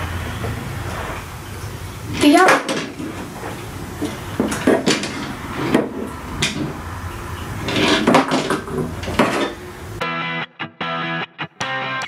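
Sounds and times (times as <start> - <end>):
objects knocking on wooden shelf: 2.2 - 6.8, 7.7 - 9.6.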